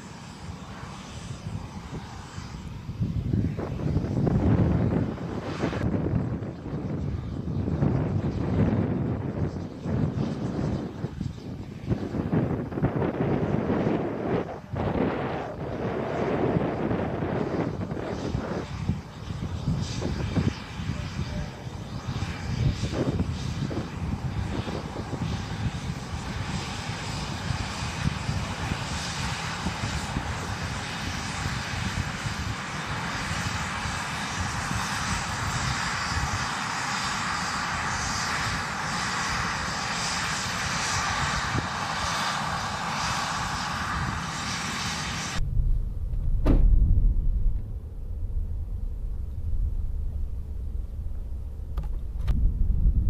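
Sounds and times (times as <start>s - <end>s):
wind rumbling on microphone: 0.0s - 53.0s
low rumble: 2.4s - 26.6s, 45.2s - 53.0s
sharp pop: 46.1s - 47.7s.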